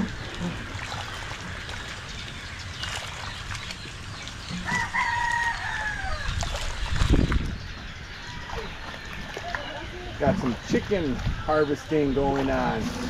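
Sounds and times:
rooster crowing: 0:04.6 - 0:06.3.

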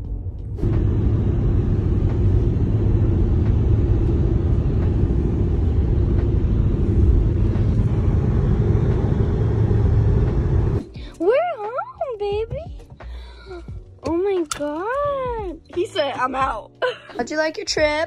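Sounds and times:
car cabin road and engine rumble: 0:00.0 - 0:12.9.

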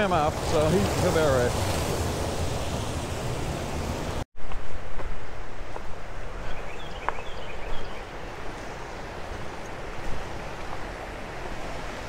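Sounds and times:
water rushing over spillway: 0:00.0 - 0:04.2
creek water flowing: 0:00.0 - 0:12.0.

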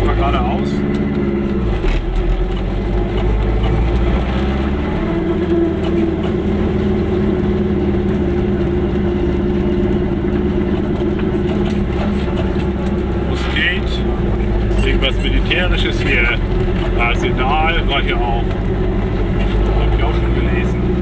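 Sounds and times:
small two-stroke car engine: 0:00.0 - 0:21.0.

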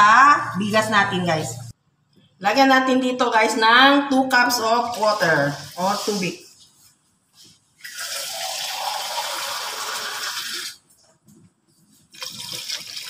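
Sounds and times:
water running: 0:04.6 - 0:06.6, 0:07.8 - 0:10.8, 0:12.1 - 0:13.0.

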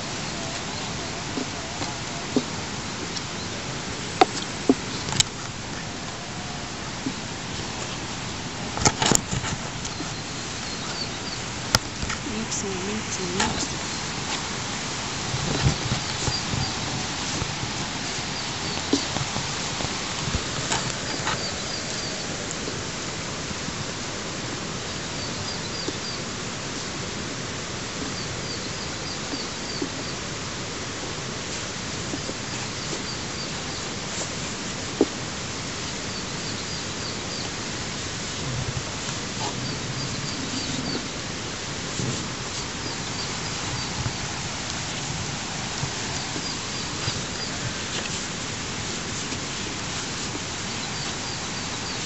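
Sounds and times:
outdoor noise hiss: 0:00.0 - 0:52.0
small bird chirping: 0:08.8 - 0:14.2, 0:15.2 - 0:22.7, 0:28.0 - 0:30.3, 0:39.4 - 0:41.2, 0:42.0 - 0:45.1, 0:45.8 - 0:48.2, 0:49.2 - 0:52.0.

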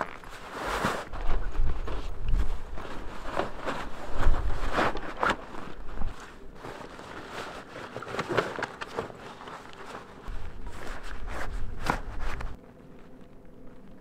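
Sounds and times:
rucksack fabric rustling: 0:00.0 - 0:12.6
wind rumble on microphone: 0:01.0 - 0:06.2, 0:10.3 - 0:12.6.

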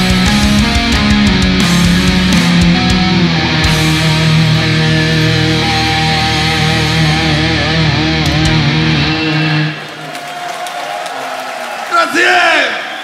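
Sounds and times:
heavy metal band playing live: 0:00.0 - 0:09.9
distorted electric guitars: 0:00.0 - 0:10.0.

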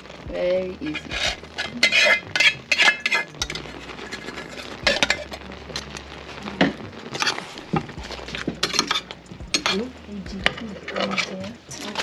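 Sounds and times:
metal ladle clinking on pan: 0:01.8 - 0:03.6.

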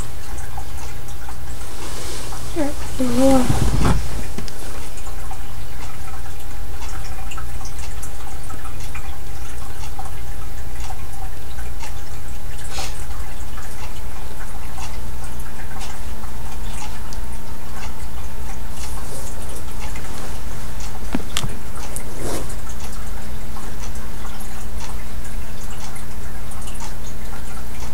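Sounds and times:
thin steady whine: 0:00.0 - 0:07.6
steady low hum: 0:00.0 - 0:27.9.

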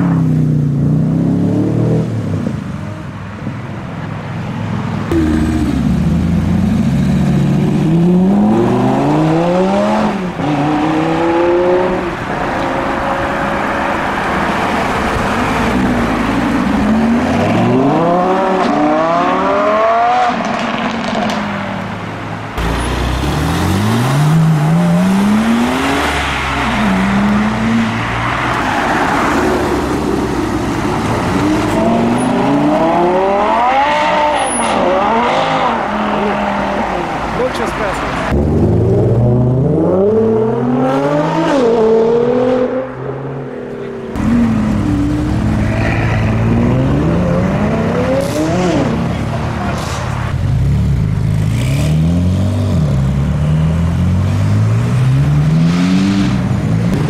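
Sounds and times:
car engines accelerating: 0:00.0 - 0:57.0.

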